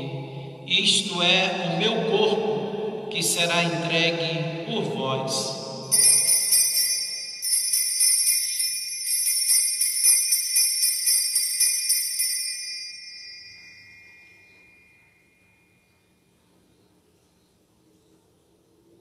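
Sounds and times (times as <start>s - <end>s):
small bells jingling: 5.8s - 16.2s.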